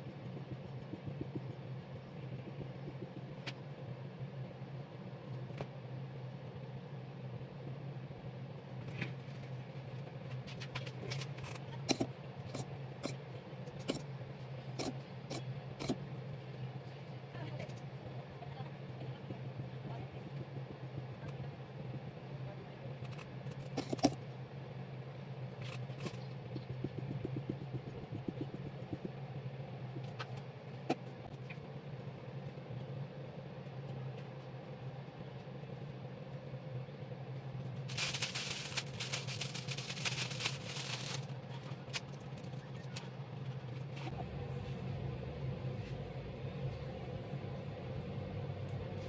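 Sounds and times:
low room hum: 0.0s - 49.0s
crinkly rustling: 37.9s - 42.0s.

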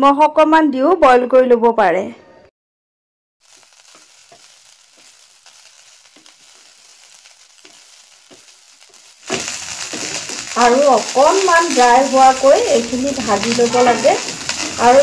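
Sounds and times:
rice sizzling in butter: 3.4s - 15.0s
wooden spatula scraping a pan: 7.6s - 15.0s.

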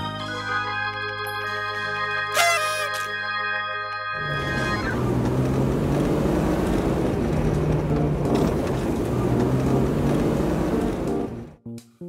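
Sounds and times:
car engine rumble: 4.2s - 11.6s.

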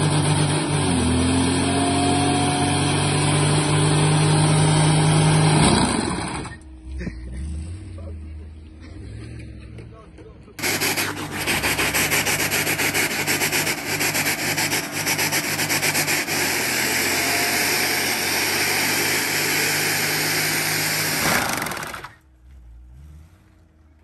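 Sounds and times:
car engine revving steadily: 0.0s - 24.0s
tyres spinning on asphalt: 9.2s - 24.0s.

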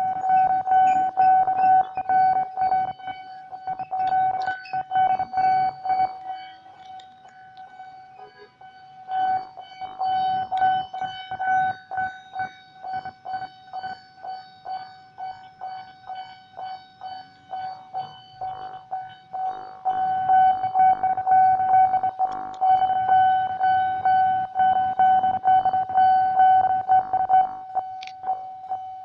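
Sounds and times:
level-crossing warning bell: 0.0s - 29.0s.

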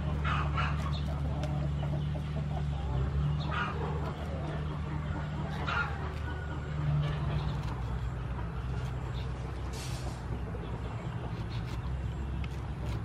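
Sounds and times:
chickens clucking: 0.0s - 13.0s
knife cutting pineapple rind: 5.6s - 9.5s, 11.0s - 13.0s.

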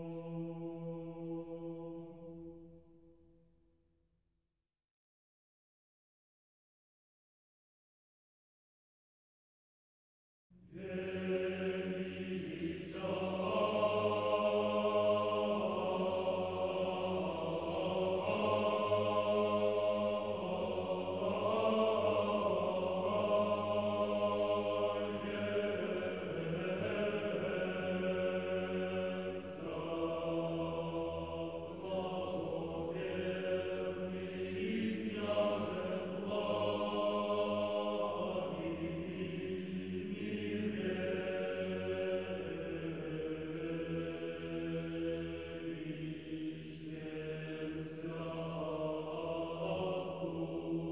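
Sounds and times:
slow unaccompanied chanting: 0.0s - 3.1s, 10.6s - 50.9s.

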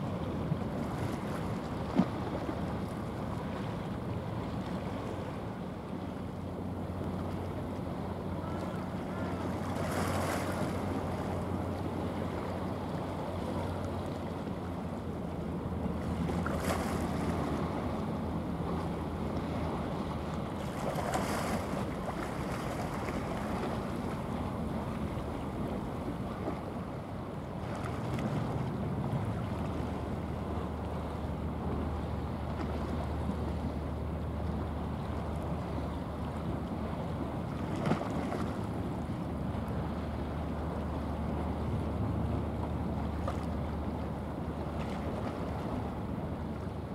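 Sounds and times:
rushing water: 0.0s - 46.9s
ship engine drone: 0.0s - 46.9s.

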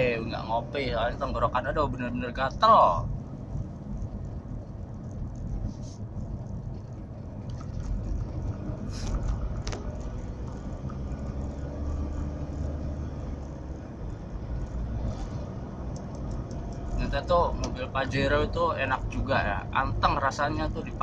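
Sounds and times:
car cabin engine rumble: 0.0s - 21.0s.

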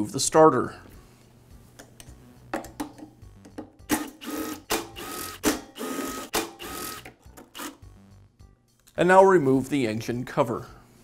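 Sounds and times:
drill clicks: 3.9s - 7.8s
cordless drill motor whining: 4.2s - 7.8s.

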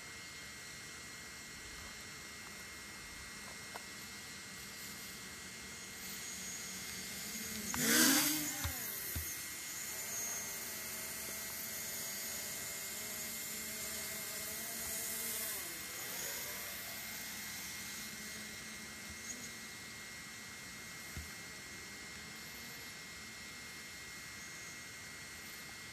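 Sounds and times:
drone motors whining: 1.8s - 25.9s.

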